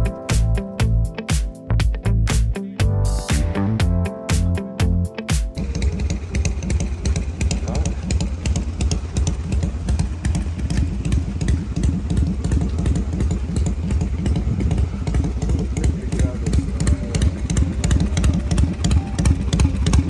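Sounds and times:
motorcycle engine idling: 5.6s - 20.0s.

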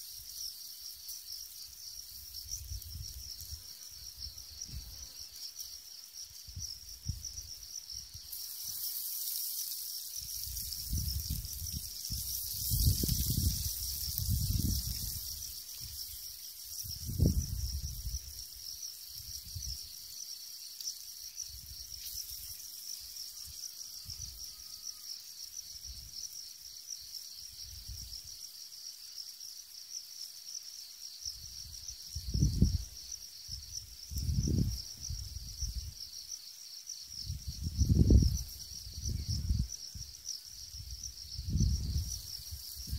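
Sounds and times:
insects trilling: 0.0s - 42.9s.

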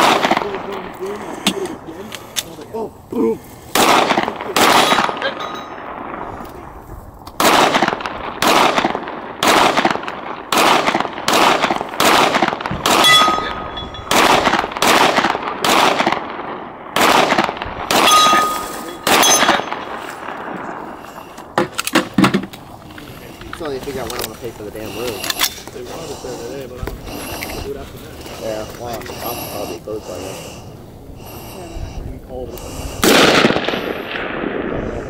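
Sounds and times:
rifle shots with echo: 0.0s - 2.6s, 3.7s - 24.1s, 32.6s - 35.0s.

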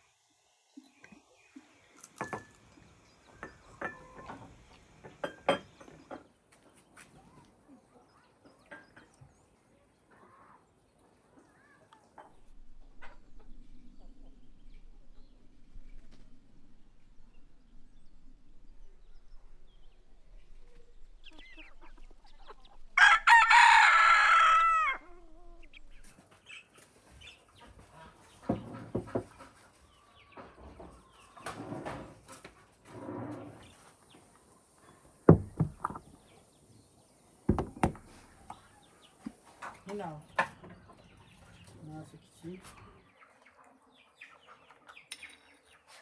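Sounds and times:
rooster crowing: 23.0s - 25.2s
sharp knocks: 35.3s - 36.0s, 37.5s - 38.1s.

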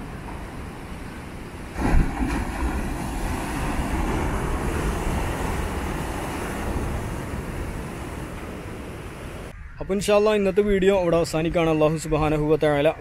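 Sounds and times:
sea waves crashing on rocks: 0.0s - 9.5s
surf rushing: 0.0s - 9.5s.

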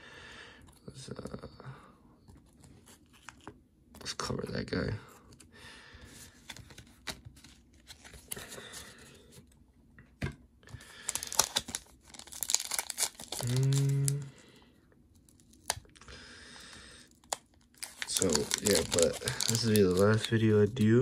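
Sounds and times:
plastic and foil packaging crinkling: 10.8s - 14.4s, 15.2s - 16.1s, 17.0s - 21.0s.

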